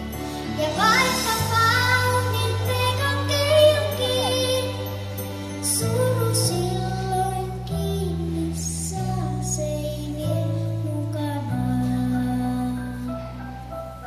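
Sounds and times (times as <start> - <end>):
amplified backing track: 0.0 - 14.0
girl singing into microphone: 0.3 - 13.8.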